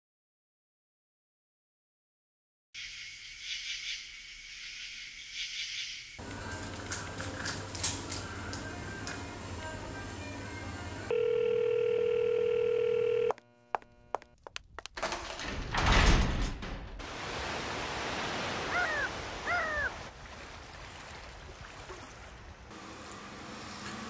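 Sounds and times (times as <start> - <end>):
telephone dial tone: 11.1 - 14.3
bird calling: 18.7 - 20.1.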